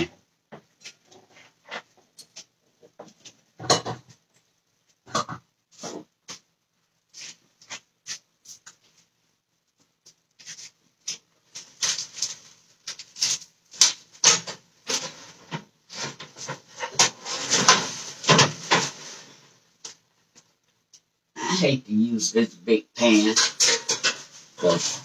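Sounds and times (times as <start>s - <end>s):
pans and trays clattering: 3.6s - 4.1s, 11.6s - 19.5s, 23.1s - 25.0s.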